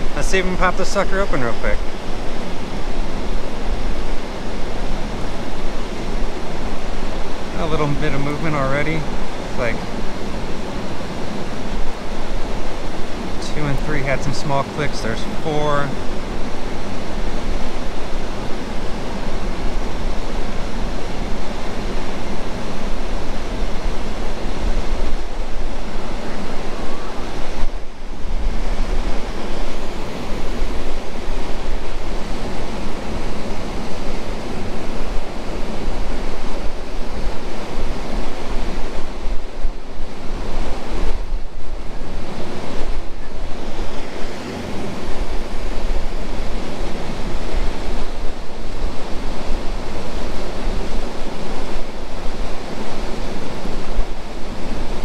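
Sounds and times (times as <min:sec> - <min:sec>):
waterfall roaring: 0:00.0 - 0:55.0
wind on microphone: 0:15.0 - 0:55.0.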